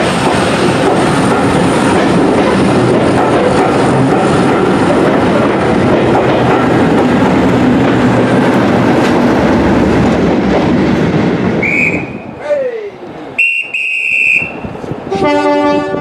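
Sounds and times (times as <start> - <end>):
train wheels clacking over rails: 0.0 - 11.6
diesel locomotive engine running: 0.0 - 12.3.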